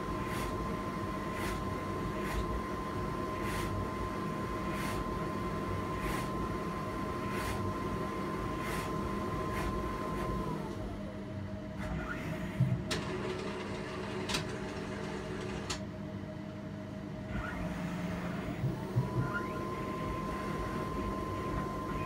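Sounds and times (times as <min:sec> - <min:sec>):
printer mechanical hum: 0:00.0 - 0:22.0
motor whine: 0:17.2 - 0:22.0.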